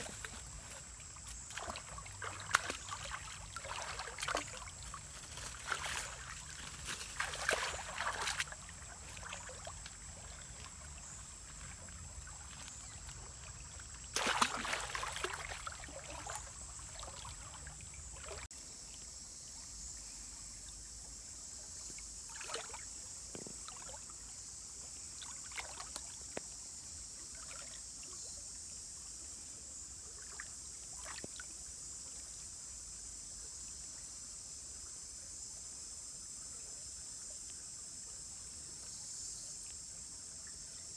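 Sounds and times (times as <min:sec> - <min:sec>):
water splashing in stream: 0:00.0 - 0:18.5, 0:22.2 - 0:24.2, 0:25.2 - 0:26.6, 0:27.2 - 0:28.1, 0:30.1 - 0:31.6.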